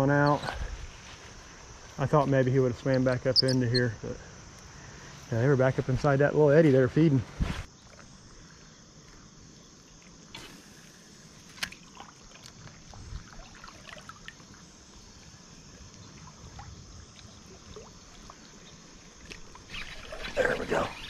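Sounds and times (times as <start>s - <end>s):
creek water trickling: 7.7s - 21.0s.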